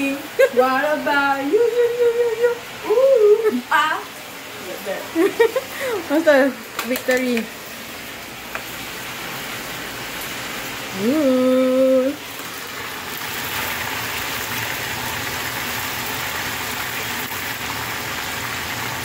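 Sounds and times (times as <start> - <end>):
meat sizzling in oil: 4.2 - 19.0.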